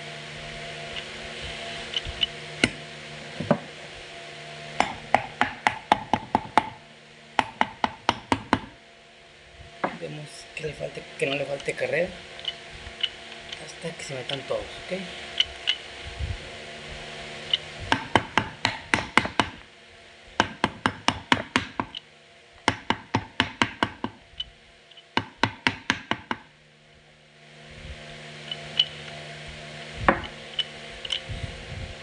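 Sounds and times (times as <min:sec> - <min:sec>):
sharp metal knocks: 0:04.8 - 0:06.8, 0:07.4 - 0:08.8, 0:17.9 - 0:19.6, 0:20.4 - 0:22.0, 0:22.7 - 0:24.2.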